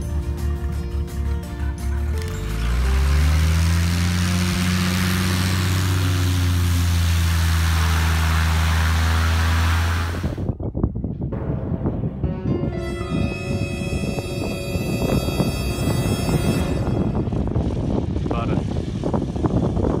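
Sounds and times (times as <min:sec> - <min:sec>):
music: 0:00.0 - 0:04.0, 0:10.7 - 0:18.6
propeller plane engine running: 0:00.0 - 0:11.1, 0:13.1 - 0:20.0.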